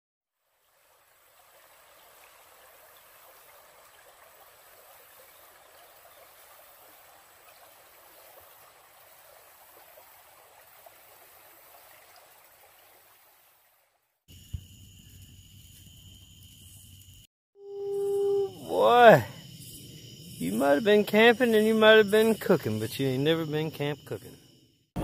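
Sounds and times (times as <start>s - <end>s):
creek babbling over rocks: 0.4s - 14.0s.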